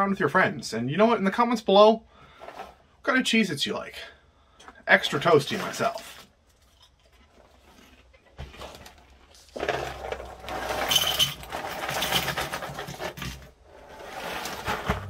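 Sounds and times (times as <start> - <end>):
crackers poured into a bowl: 9.4 - 13.0.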